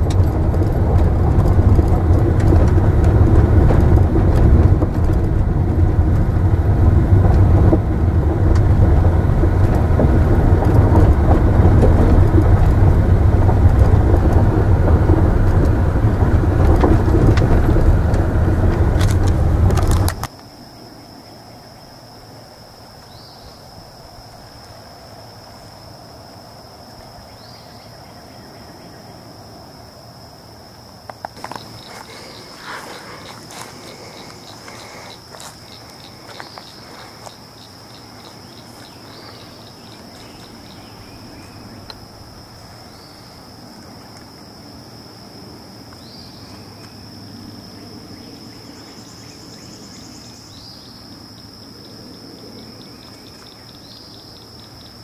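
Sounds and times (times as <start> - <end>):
knocks and rustles: 0.0 - 20.3, 31.1 - 40.7
insect chorus: 0.0 - 55.0
short rising insect chirp: 31.2 - 55.0.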